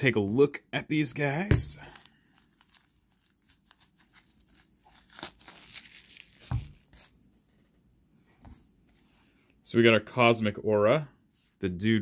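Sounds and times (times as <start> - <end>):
shrink wrap crinkling and tearing: 1.6 - 7.2.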